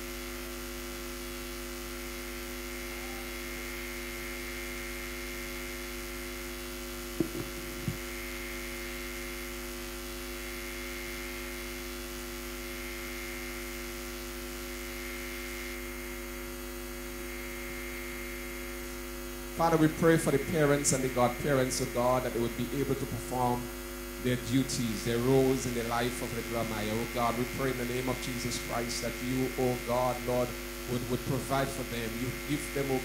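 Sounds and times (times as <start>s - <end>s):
electrical mains hum: 0.0s - 33.0s
brief knocks: 7.2s - 8.0s.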